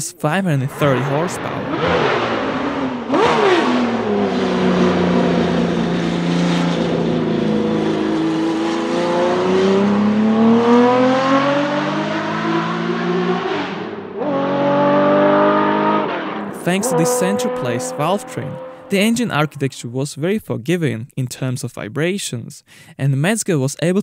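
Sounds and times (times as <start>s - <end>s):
race car engine revving: 0.7s - 19.8s.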